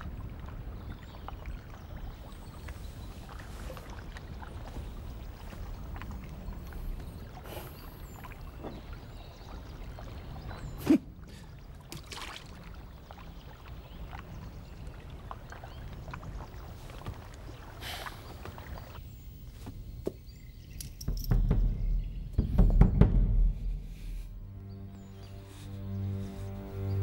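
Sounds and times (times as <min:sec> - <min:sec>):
lake water lapping: 0:00.0 - 0:19.6.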